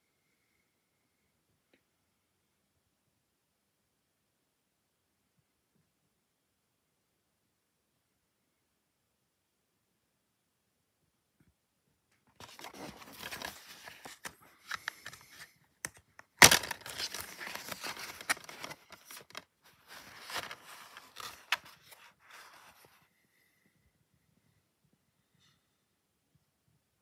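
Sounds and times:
plastic case snapping open: 0:12.4 - 0:19.4
plastic case rustling and scraping: 0:12.4 - 0:23.0.

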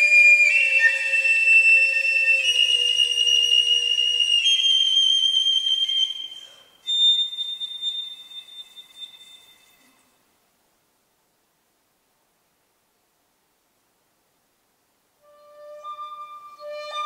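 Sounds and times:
piccolo playing high notes: 0:00.0 - 0:09.9, 0:15.3 - 0:17.0.

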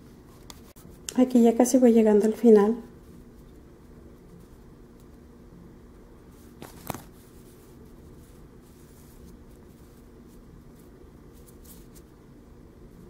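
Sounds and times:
low room hum: 0:00.0 - 0:13.0
crochet hook rustling yarn: 0:00.3 - 0:01.6, 0:06.3 - 0:12.2.

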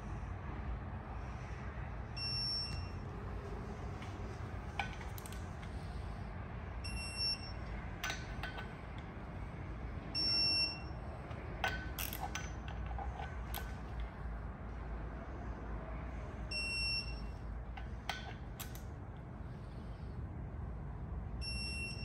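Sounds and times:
short electronic beeps: 0:02.2 - 0:03.0, 0:06.8 - 0:07.7, 0:10.2 - 0:11.0, 0:16.5 - 0:17.3, 0:21.4 - 0:22.0
wrench clicking on bolts: 0:04.0 - 0:06.0, 0:07.6 - 0:09.2, 0:11.2 - 0:14.2, 0:17.7 - 0:18.9.

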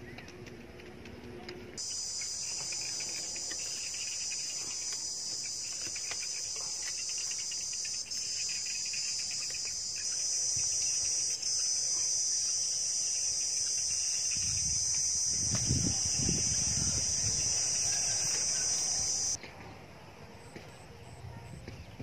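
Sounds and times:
fast pulsing insect chirp: 0:01.8 - 0:19.4
insects chirring: 0:01.8 - 0:19.4.

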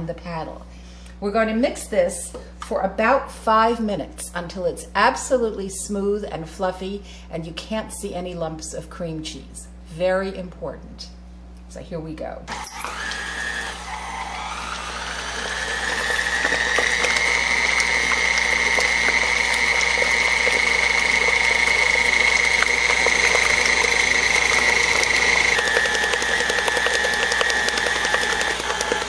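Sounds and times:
stand mixer motor whining: 0:12.5 - 0:29.0.

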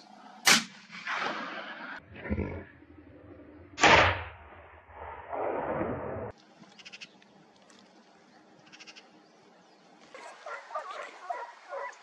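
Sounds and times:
rifle shot: 0:00.4 - 0:01.9, 0:03.8 - 0:06.0.

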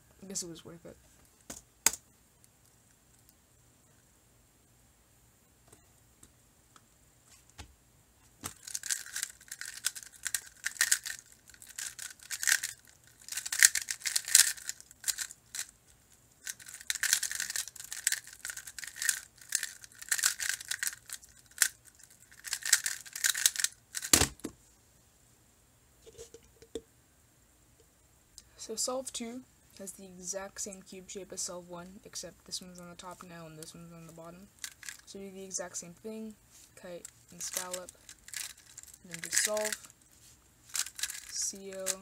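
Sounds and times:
plastic puzzle layers clacking: 0:08.4 - 0:15.7, 0:16.4 - 0:24.5, 0:34.6 - 0:35.1, 0:37.0 - 0:40.0, 0:40.7 - 0:42.0.

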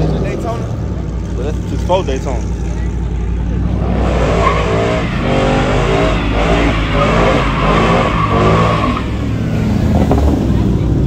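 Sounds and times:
car engine revving: 0:00.0 - 0:11.0
tire squeal: 0:03.8 - 0:09.4.

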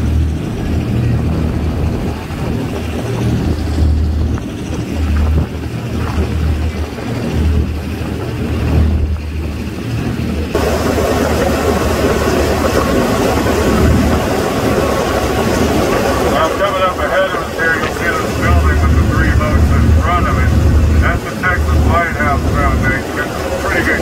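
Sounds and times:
boat engine rumbling: 0:00.0 - 0:24.0
loud rushing noise: 0:10.5 - 0:24.0.

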